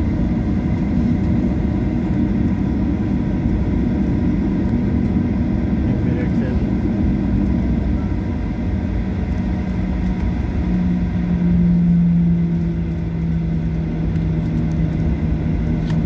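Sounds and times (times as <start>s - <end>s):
jet engines taxiing rumble: 0.0s - 16.0s.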